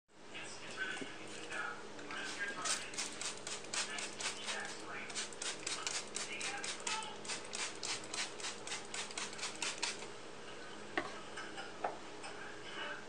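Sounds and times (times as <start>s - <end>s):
spray bottle hissing sprays: 2.7s - 10.0s.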